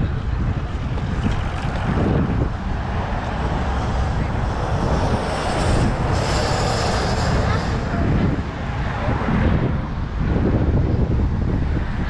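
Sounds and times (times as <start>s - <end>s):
road traffic rush: 0.0s - 12.0s
car passing close: 0.7s - 9.8s.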